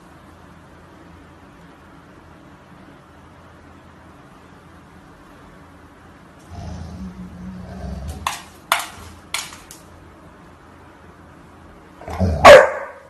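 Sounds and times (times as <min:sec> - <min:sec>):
dog growling low: 0:06.4 - 0:08.3
dog claws clicking on tile: 0:08.0 - 0:09.9
dog barking: 0:12.1 - 0:13.0.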